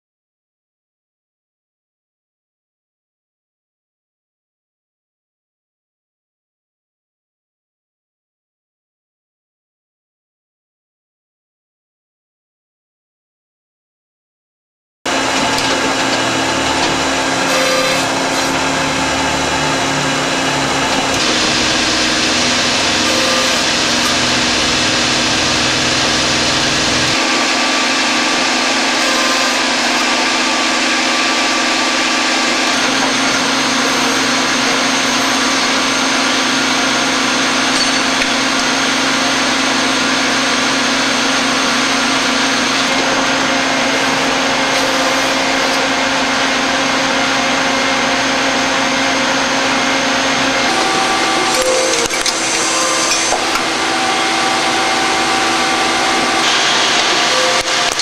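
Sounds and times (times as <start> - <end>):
machine whirring and humming: 15.1 - 58.0.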